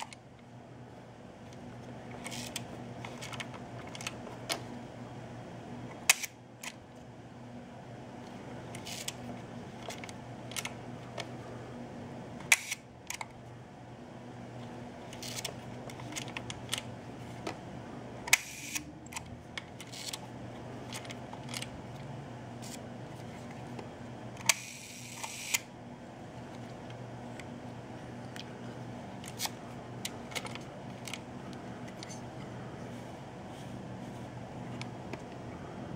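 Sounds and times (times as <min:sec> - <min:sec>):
camera shutter whir: 0:06.0 - 0:06.8, 0:08.7 - 0:09.2, 0:12.5 - 0:12.9, 0:15.1 - 0:15.6, 0:18.3 - 0:19.2, 0:24.4 - 0:25.7.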